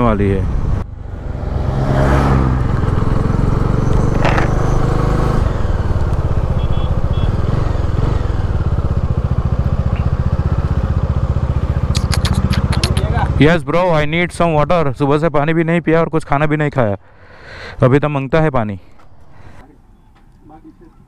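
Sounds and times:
motorcycle engine running: 0:02.5 - 0:13.5.

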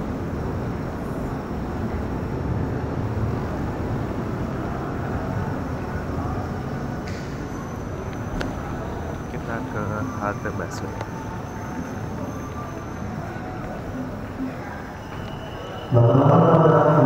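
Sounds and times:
train station concourse rumble: 0:00.0 - 0:17.0
faint high steady tone: 0:04.6 - 0:17.0.

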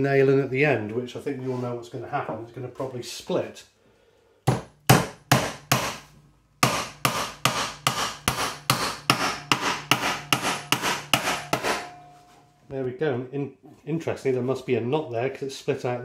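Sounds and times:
hammer driving nail into wood: 0:04.5 - 0:11.9.

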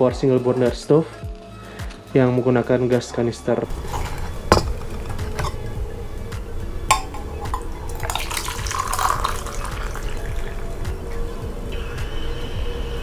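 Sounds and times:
metal pot clinking: 0:03.7 - 0:10.8
water pouring into metal mug: 0:06.6 - 0:11.3.

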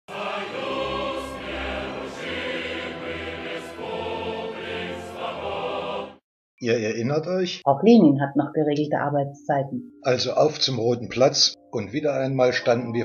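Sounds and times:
choir singing held chords: 0:00.0 - 0:06.2.

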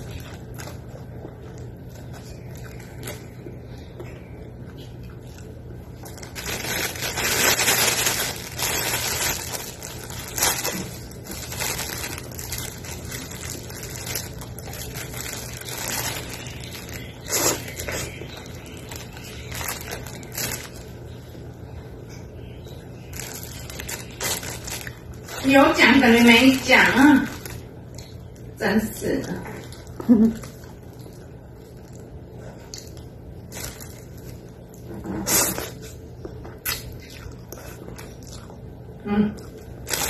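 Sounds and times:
plastic bag crinkling: 0:05.4 - 0:21.2, 0:23.0 - 0:28.3, 0:33.3 - 0:34.8, 0:39.6 - 0:40.0.

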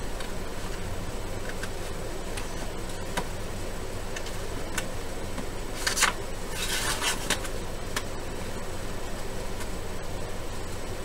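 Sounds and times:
steady low hum: 0:00.0 - 0:11.0
scissors cutting paper: 0:05.8 - 0:07.6.

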